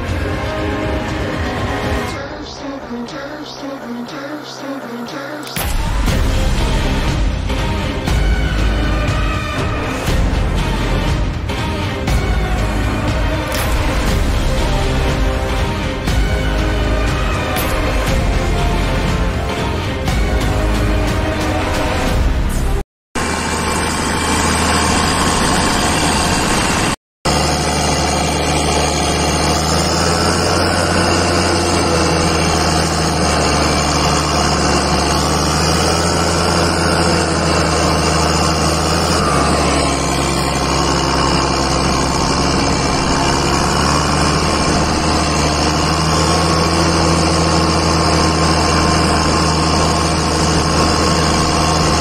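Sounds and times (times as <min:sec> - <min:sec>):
tractor diesel engine running: 0:00.0 - 0:52.0.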